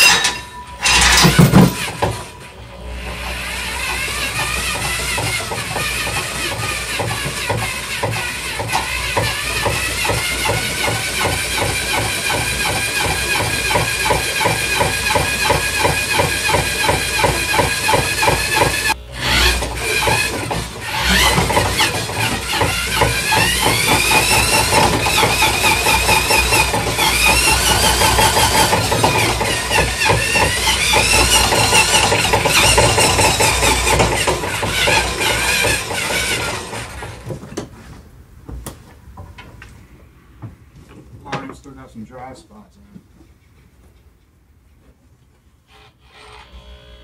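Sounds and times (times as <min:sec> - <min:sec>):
electric drill motor whining: 0:00.8 - 0:37.3, 0:45.7 - 0:47.0.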